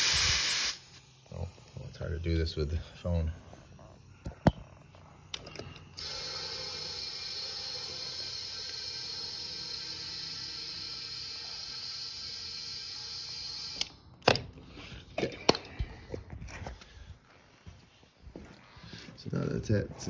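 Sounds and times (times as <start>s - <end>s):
compressed air hissing: 0.0s - 3.2s, 5.8s - 12.8s.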